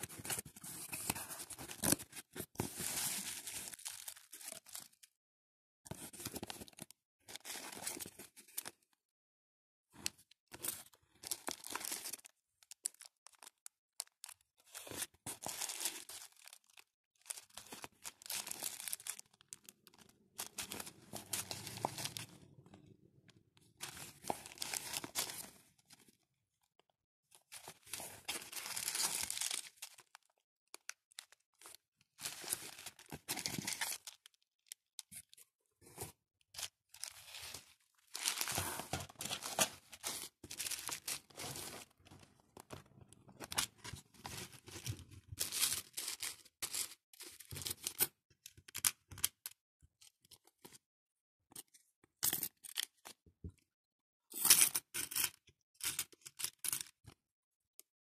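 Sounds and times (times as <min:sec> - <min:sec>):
plastic bags crinkling: 0:03.3 - 0:04.8, 0:15.4 - 0:22.3, 0:23.8 - 0:25.5, 0:27.6 - 0:30.1, 0:37.0 - 0:42.0.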